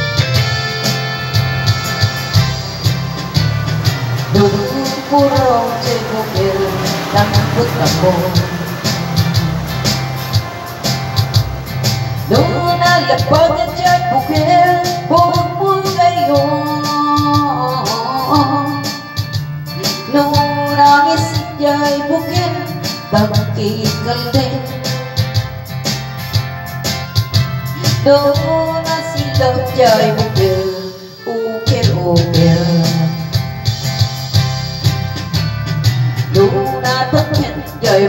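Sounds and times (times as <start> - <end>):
backing music with guitar and beat: 0.0 - 38.0
woman singing into microphone: 4.2 - 9.8, 12.2 - 25.4, 27.7 - 33.5, 36.3 - 38.0.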